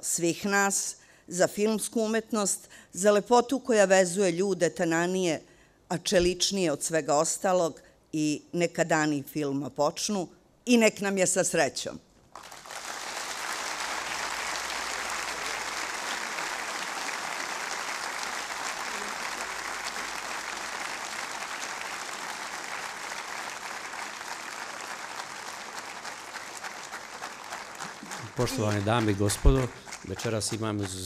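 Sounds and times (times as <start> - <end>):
audience applauding: 12.3 - 31.0.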